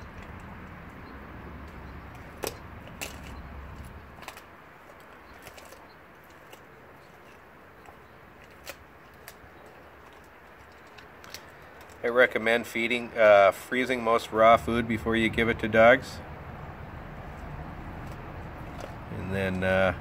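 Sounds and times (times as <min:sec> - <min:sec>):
dog crunching frozen fish: 0:00.0 - 0:12.7, 0:17.1 - 0:20.0.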